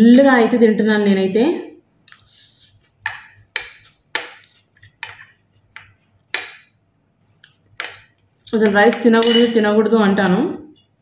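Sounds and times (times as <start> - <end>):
spoon scraping a plate: 2.1 - 5.9.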